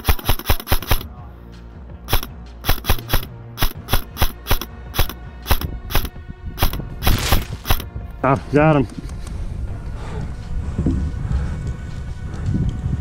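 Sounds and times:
airsoft rifle shots: 0.0s - 1.1s, 2.1s - 7.9s.

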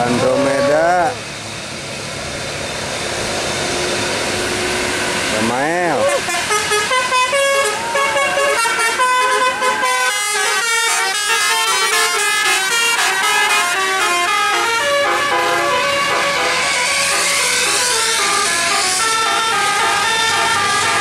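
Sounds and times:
bus horn playing melody: 6.1s - 21.0s.

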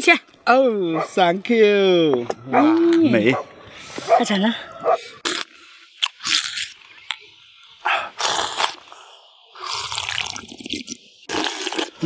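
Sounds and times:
man slurping soup: 5.2s - 6.7s, 7.9s - 12.0s.

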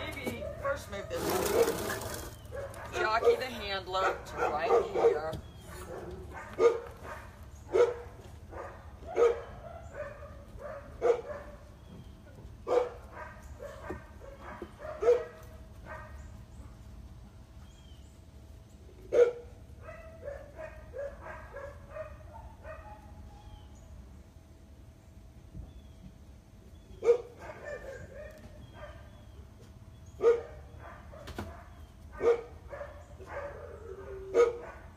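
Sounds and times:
dog yipping: 0.3s - 11.6s, 12.7s - 16.2s, 19.1s - 23.5s, 27.0s - 29.2s, 30.2s - 34.9s
dog barking: 0.4s - 11.6s, 12.6s - 16.2s, 19.1s - 23.2s, 27.0s - 29.1s, 30.2s - 34.9s.

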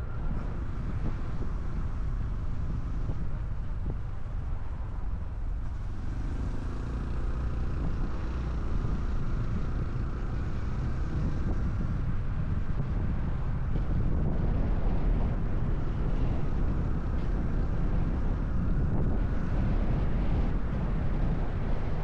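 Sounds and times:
wind on microphone: 0.0s - 22.0s
motorcycle engine running: 5.6s - 22.0s.

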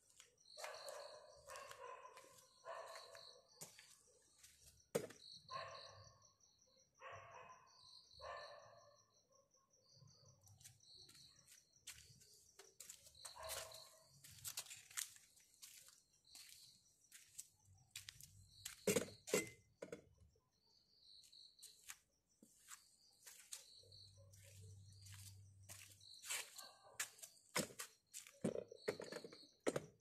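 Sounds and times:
insects chirping: 0.0s - 30.0s.

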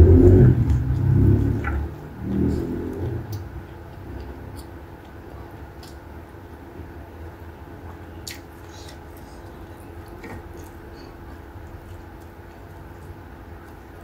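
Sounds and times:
steady low hum: 0.0s - 14.0s
person chewing with wet clicks: 0.4s - 14.0s.

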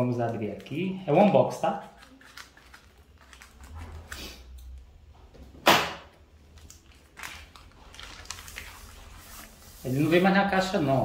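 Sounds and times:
plastic crinkling rustles: 0.0s - 4.6s, 6.4s - 11.0s
plastic envelope ripping: 0.2s - 4.5s, 6.5s - 10.2s.

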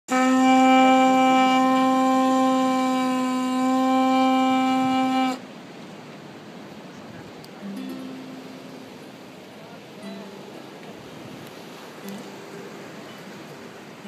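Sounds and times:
conch shell trumpet note: 0.1s - 5.4s.

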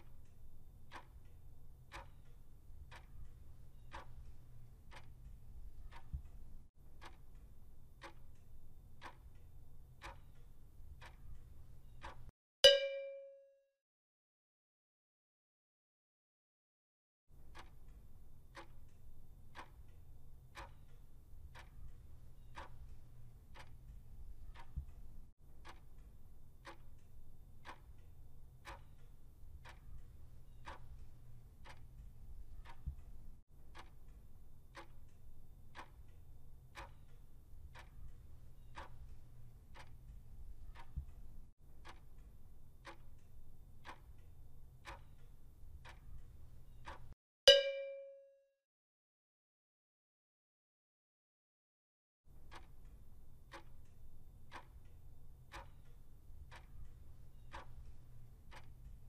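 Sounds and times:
clock ticking: 0.0s - 13.0s, 17.4s - 48.1s, 52.3s - 59.0s
short chime: 12.7s - 13.6s, 47.5s - 48.4s.

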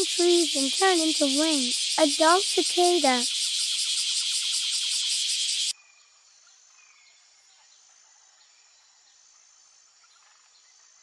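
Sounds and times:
cicadas buzzing: 0.0s - 5.7s
thin high calls: 0.0s - 5.7s.

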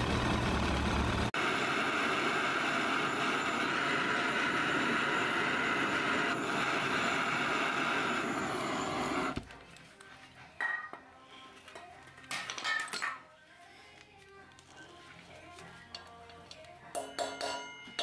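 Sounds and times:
gas torch hissing: 1.3s - 9.4s.

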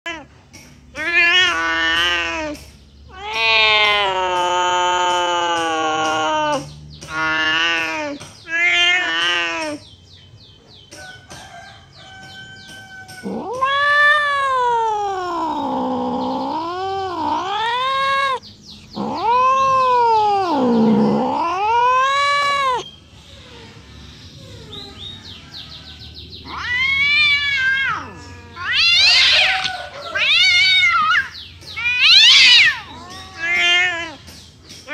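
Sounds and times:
cat yowling: 1.0s - 9.8s, 13.0s - 18.4s, 19.0s - 22.9s, 26.4s - 34.9s.

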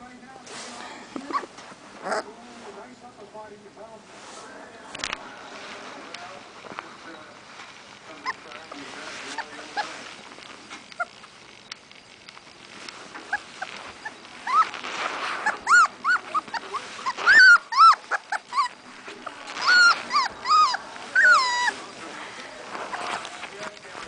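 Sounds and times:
puppy whining: 0.8s - 2.4s, 8.1s - 23.6s.

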